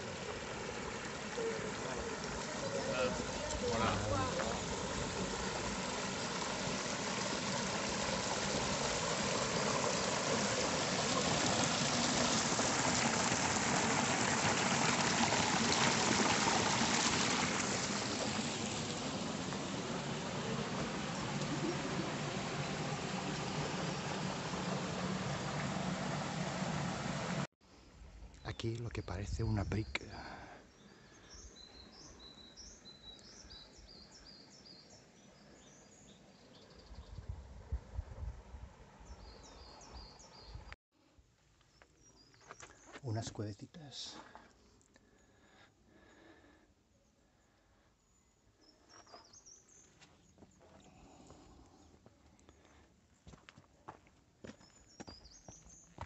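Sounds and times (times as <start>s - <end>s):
stream splashing over rocks: 0.0s - 27.5s
faint bird chirping: 28.3s - 37.3s, 46.8s - 53.4s, 54.4s - 56.0s.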